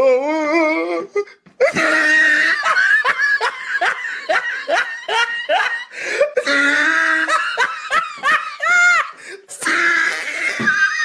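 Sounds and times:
person laughing hard: 1.6s - 9.4s.

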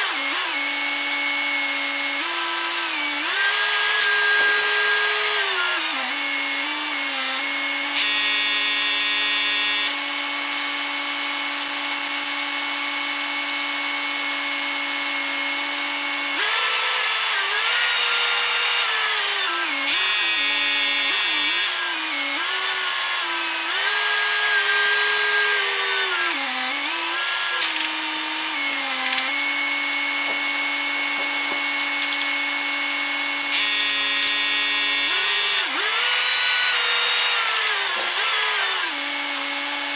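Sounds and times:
crane engine and hydraulic whine: 7.9s - 10.0s, 16.8s - 22.3s, 27.2s - 38.0s
rough buzzing: 27.0s - 38.9s.

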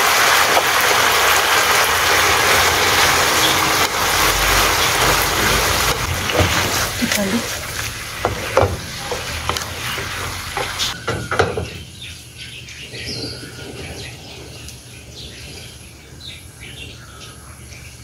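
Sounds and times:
food sizzling in a frying pan: 0.0s - 11.0s
birds chirping: 0.0s - 18.0s
spatula knocking on pan: 8.2s - 11.7s.

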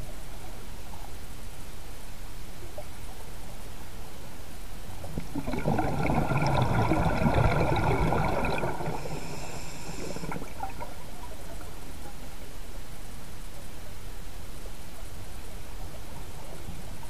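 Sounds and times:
low water hiss: 0.0s - 17.0s
underwater breath bubbles: 5.0s - 11.1s.

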